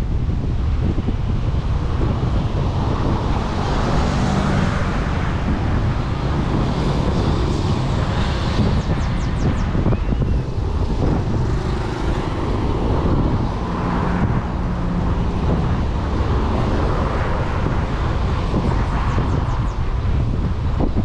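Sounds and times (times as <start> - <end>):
road traffic passing: 0.0 - 21.0
wind rumbling on microphone: 0.0 - 21.0.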